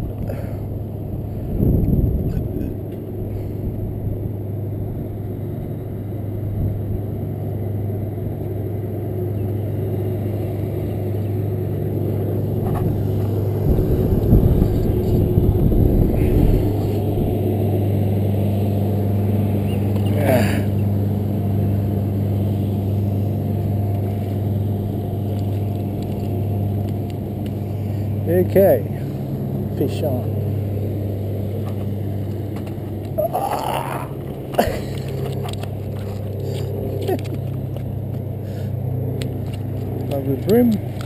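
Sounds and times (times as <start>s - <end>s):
wind rumbling on microphone: 0.0s - 5.3s, 12.4s - 17.6s
low mechanical hum: 0.0s - 41.0s.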